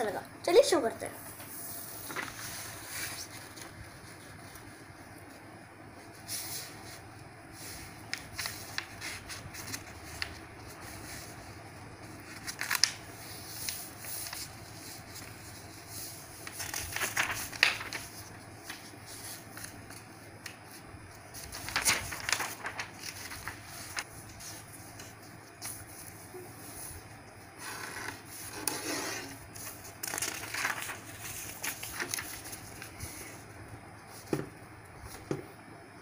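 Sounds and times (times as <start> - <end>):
paper folding and creasing: 1.8 - 5.4, 7.6 - 33.4.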